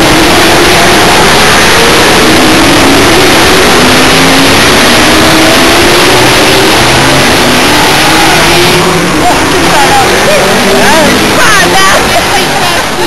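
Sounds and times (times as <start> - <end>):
race car engines passing: 0.0 - 13.0.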